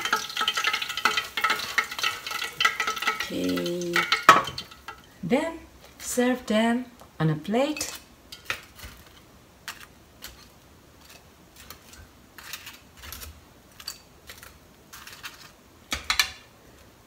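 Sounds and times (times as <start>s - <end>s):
fried chicken set on plate: 0.0s - 5.0s.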